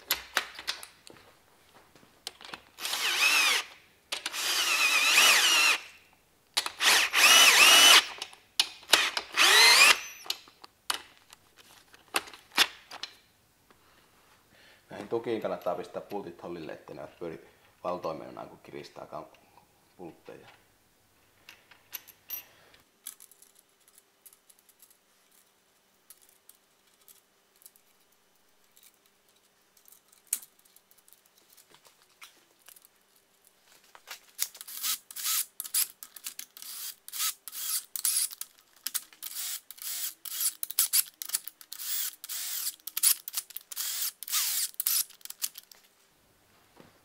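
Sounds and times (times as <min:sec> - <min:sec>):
cordless drill rattling clicks: 0:06.6 - 0:10.4, 0:34.6 - 0:45.7.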